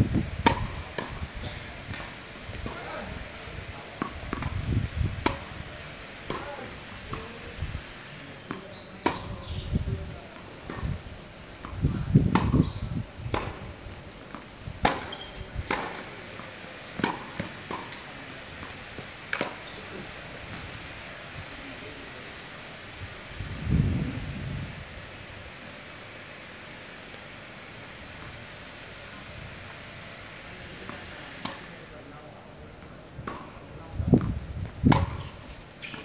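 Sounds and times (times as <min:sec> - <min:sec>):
tennis ball bouncing on court: 0:00.4 - 0:02.9, 0:04.0 - 0:04.6, 0:05.2 - 0:05.5, 0:06.2 - 0:07.4, 0:08.4 - 0:09.6, 0:10.4 - 0:10.9, 0:11.6 - 0:19.7, 0:30.9 - 0:31.7, 0:33.2 - 0:33.6, 0:34.2 - 0:36.0
tennis ball struck by rackets: 0:00.4 - 0:03.0, 0:04.0 - 0:04.6, 0:05.2 - 0:05.6, 0:06.2 - 0:07.4, 0:08.4 - 0:09.6, 0:10.4 - 0:11.0, 0:11.6 - 0:19.7, 0:30.9 - 0:31.7, 0:33.2 - 0:33.6, 0:34.2 - 0:36.0.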